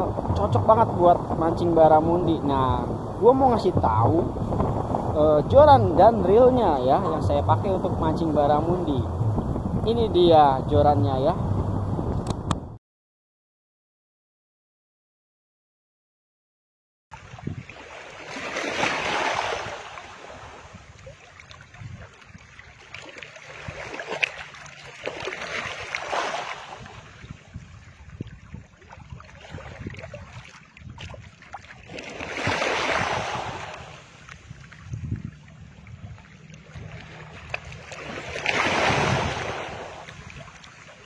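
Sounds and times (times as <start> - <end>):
waves washing against platform: 17.2 - 41.0.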